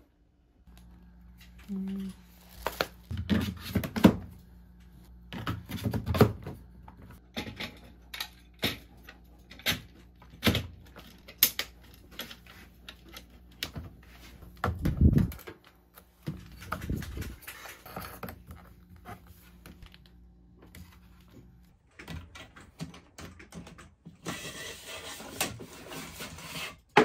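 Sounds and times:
plastic parts clicking and rattling: 7.2s - 14.0s, 14.6s - 18.7s, 21.7s - 24.2s.

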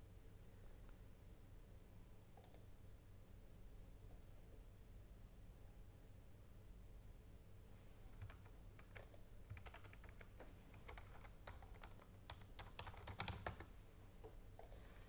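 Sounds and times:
typing on computer keyboard: 8.2s - 13.7s.

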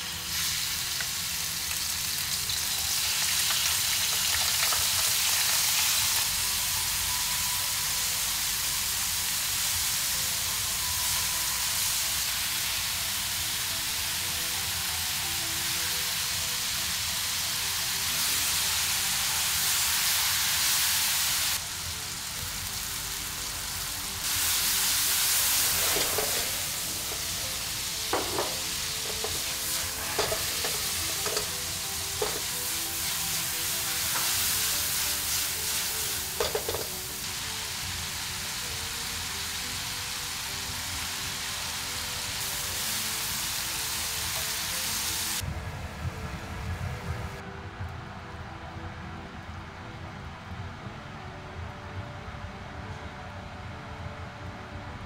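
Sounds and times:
meat sizzling in oil: 0.0s - 45.4s
metal tongs clacking on pan: 28.2s - 31.5s.

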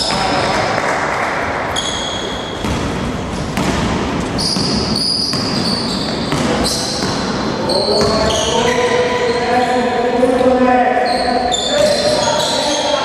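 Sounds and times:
basketball dribbled on wooden floor: 3.6s - 8.5s.

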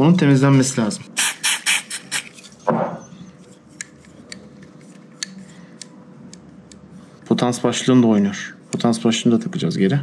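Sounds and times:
aerosol spray hissing bursts: 1.2s - 2.3s.

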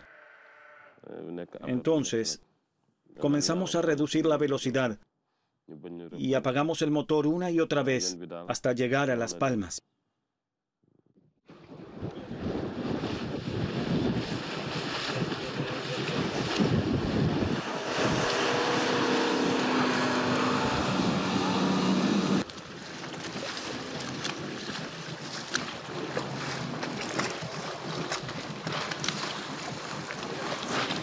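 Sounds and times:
motorboat engine: 11.5s - 31.0s
water lapping: 11.5s - 31.0s
water rushing: 11.5s - 31.0s
wind buffeting microphone: 11.5s - 31.0s
small knocks and splashes: 22.4s - 31.0s.

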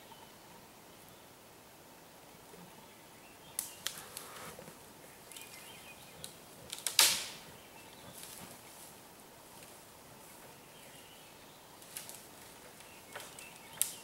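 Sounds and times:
twigs snapping: 3.6s - 4.3s, 6.2s - 7.4s, 11.8s - 14.0s
brush rustling: 3.6s - 14.0s.

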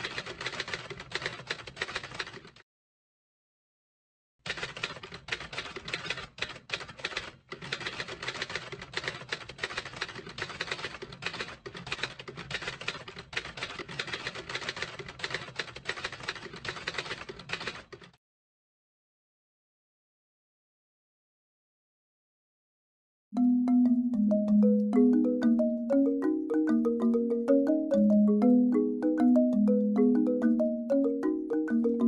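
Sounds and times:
typewriter keys clacking: 0.0s - 2.6s, 4.5s - 18.2s.

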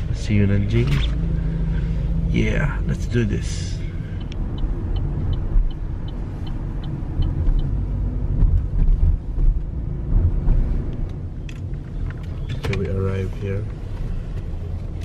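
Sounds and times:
road and engine rumble: 0.0s - 15.0s
light regular ticking: 4.1s - 7.8s.

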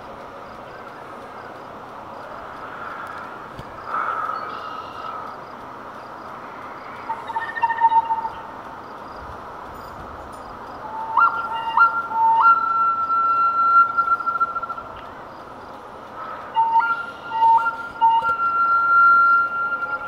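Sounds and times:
solo flute melody: 10.8s - 15.1s, 16.5s - 20.0s.

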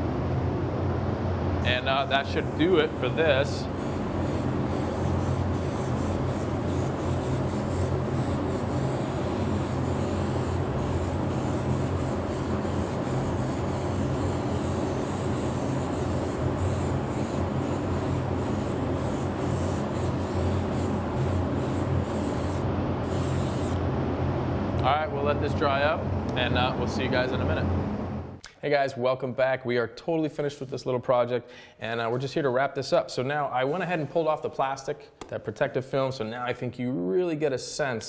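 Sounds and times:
steady low hum: 0.0s - 28.4s
airbrush hissing: 1.6s - 23.8s.

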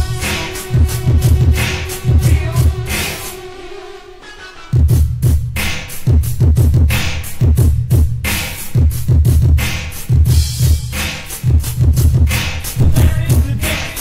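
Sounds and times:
booming bass drum: 0.0s - 3.3s, 4.8s - 14.0s
drum machine hip-hop beat: 0.0s - 14.0s
sharp snare hits: 10.9s - 11.5s.

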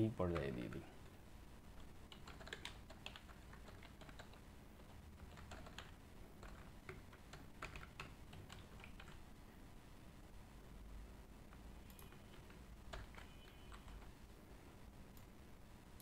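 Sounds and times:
typing on computer keyboard: 1.8s - 9.2s, 11.5s - 14.1s.

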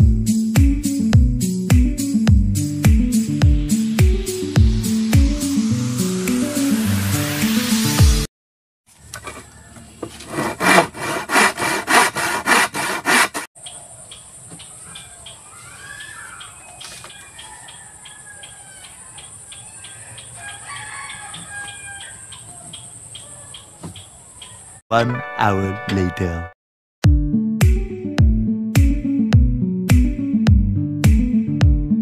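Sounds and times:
handsaw cutting wood: 10.1s - 13.5s
rooster crowing: 17.0s - 23.7s.

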